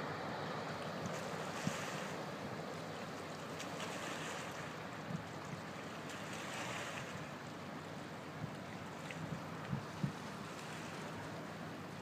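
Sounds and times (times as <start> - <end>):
boat engine drone: 0.0 - 12.0
water lapping at bank: 0.0 - 12.0
wind on microphone: 8.4 - 10.9.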